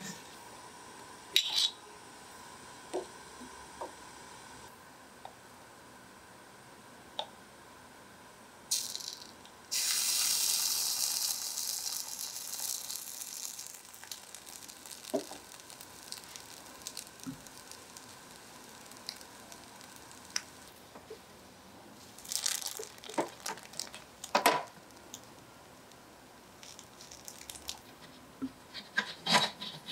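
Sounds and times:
batter sizzling in skillet: 8.7 - 20.9, 22.0 - 25.4, 26.6 - 27.8.

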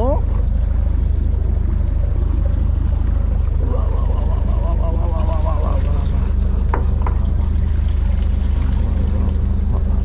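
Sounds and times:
boat engine drone: 0.0 - 10.0
water pouring and dripping: 5.2 - 10.0.

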